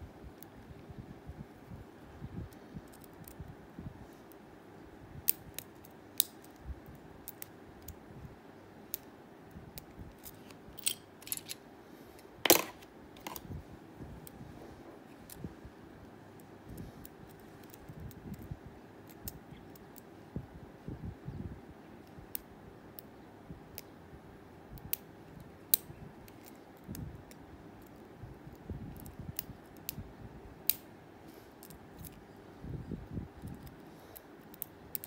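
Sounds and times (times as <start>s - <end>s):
small metallic lock pick clicks: 34.4s - 35.0s.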